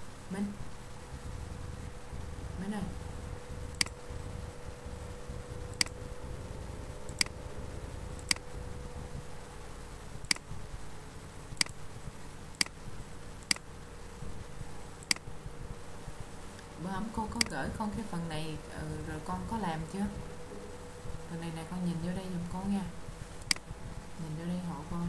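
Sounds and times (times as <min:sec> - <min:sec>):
faint steady hum: 0:00.0 - 0:25.0
computer mouse clicking: 0:05.8 - 0:06.0, 0:07.1 - 0:07.4, 0:11.6 - 0:11.8, 0:13.4 - 0:13.7, 0:15.0 - 0:15.4, 0:23.4 - 0:23.7.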